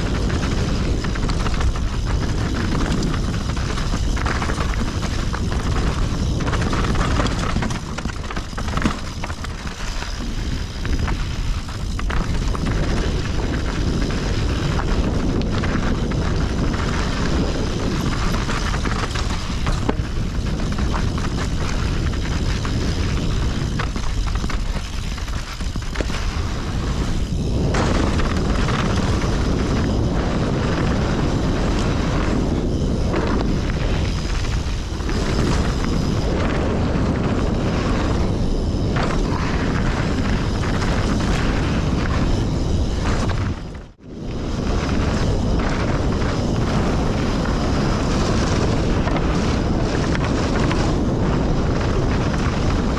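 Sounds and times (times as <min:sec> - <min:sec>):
bike rattling and clattering: 0:00.0 - 0:52.9
wind and tyres rumbling: 0:00.0 - 0:52.9.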